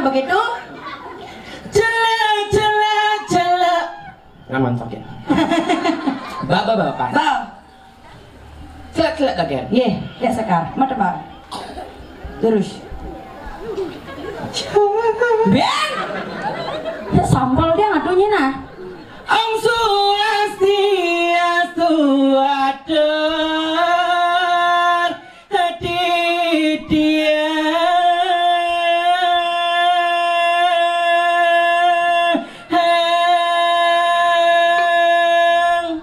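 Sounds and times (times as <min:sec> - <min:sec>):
person singing unaccompanied: 0:00.0 - 0:36.0.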